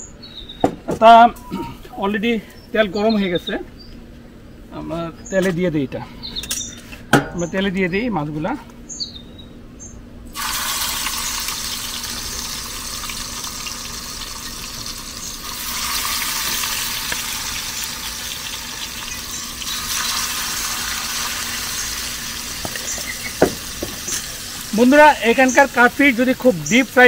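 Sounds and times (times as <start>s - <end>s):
fish sizzling in hot oil: 10.3s - 27.0s.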